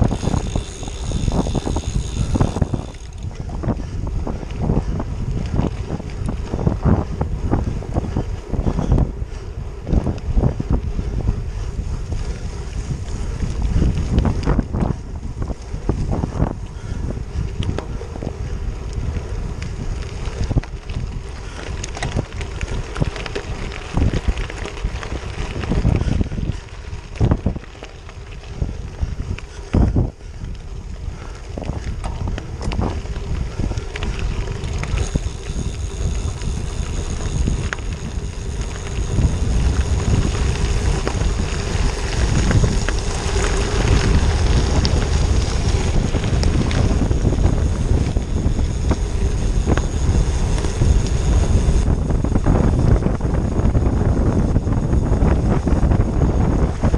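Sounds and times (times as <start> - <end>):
tyres crunching over gravel: 0.0 - 3.6, 17.4 - 29.8, 31.3 - 51.9
bicycle knocks and rattles: 0.0 - 56.9
wind rushing over microphone: 0.0 - 56.9.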